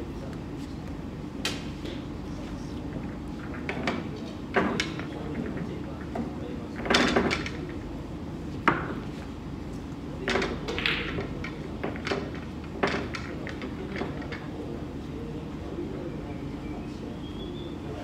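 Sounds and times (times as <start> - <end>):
low background noise: 0.0 - 18.0
pool balls clicking: 3.4 - 7.8, 10.2 - 14.5.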